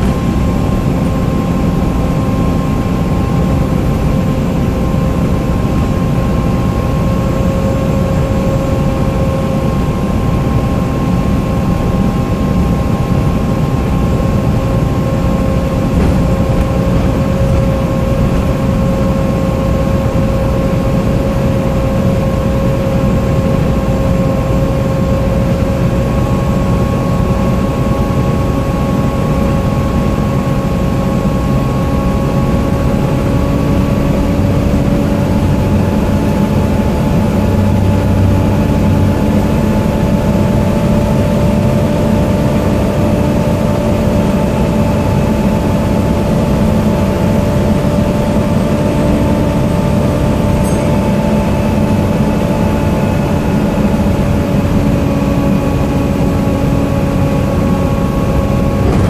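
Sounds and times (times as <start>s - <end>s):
bus engine and road rumble: 0.0s - 59.0s
high whine rising in pitch: 49.8s - 59.0s.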